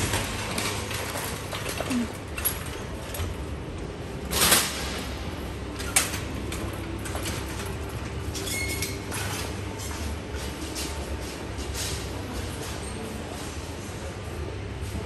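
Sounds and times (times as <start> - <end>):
suitcase wheels rolling: 0.0 - 11.0.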